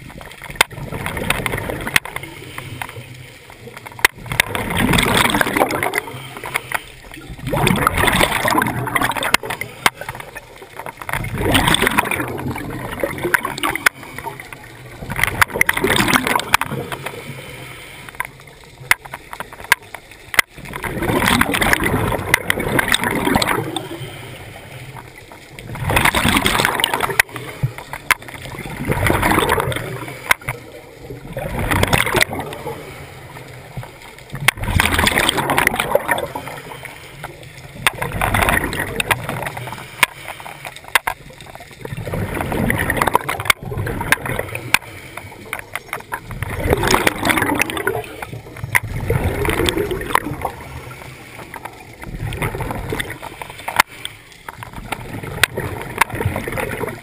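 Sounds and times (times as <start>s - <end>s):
gurgling bubble bursts: 0.0s - 2.4s, 3.7s - 17.1s, 20.4s - 24.2s, 25.5s - 36.8s, 37.8s - 39.8s, 41.6s - 44.8s, 45.5s - 53.9s, 54.6s - 57.0s
scuba regulator breathing: 5.8s - 7.2s, 16.8s - 18.4s, 23.6s - 25.1s, 39.3s - 40.9s, 44.4s - 46.4s, 52.9s - 54.5s.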